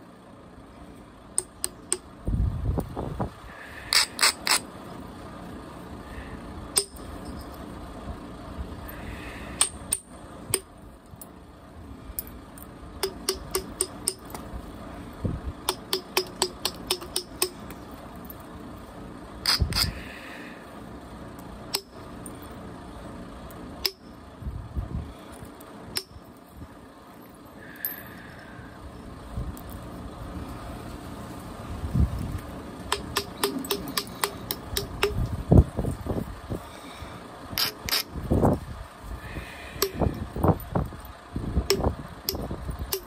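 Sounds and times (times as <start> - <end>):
billet striking stone: 6.8 - 7.1, 13.0 - 14.4, 15.7 - 17.6, 21.8 - 22.0, 26.0 - 26.2, 32.9 - 35.3.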